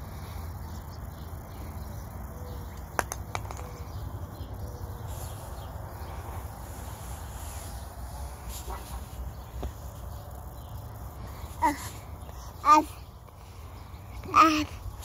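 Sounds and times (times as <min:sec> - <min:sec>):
sharp clicks: 0:02.7 - 0:03.8.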